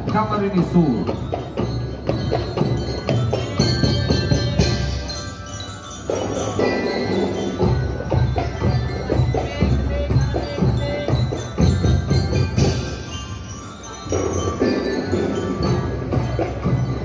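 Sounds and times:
drumline beating: 0:00.0 - 0:13.3
glockenspiel bell notes: 0:00.0 - 0:17.0.

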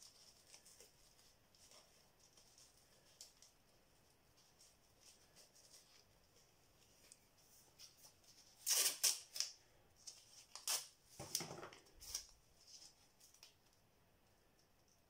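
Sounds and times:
masking tape crinkling and rustling: 0:00.0 - 0:13.9.

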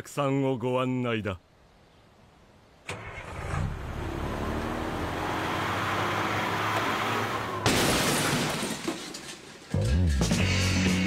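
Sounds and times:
bus engine revving: 0:02.9 - 0:07.7
loud crash: 0:07.5 - 0:09.6.

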